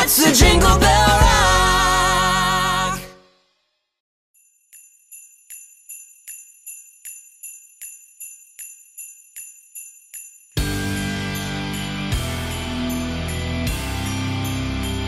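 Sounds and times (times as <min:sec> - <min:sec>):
jingle bells shaken: 0:04.4 - 0:15.0.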